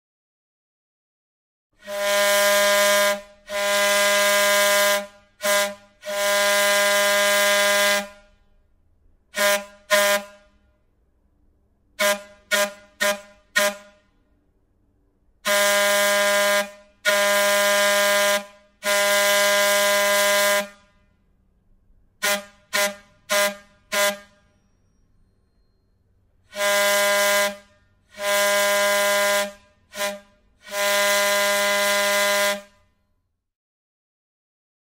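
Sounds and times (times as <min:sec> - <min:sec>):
train air whistle blasts: 0:01.8 - 0:08.6, 0:09.3 - 0:10.8, 0:11.9 - 0:14.3, 0:15.4 - 0:21.1, 0:22.2 - 0:33.0.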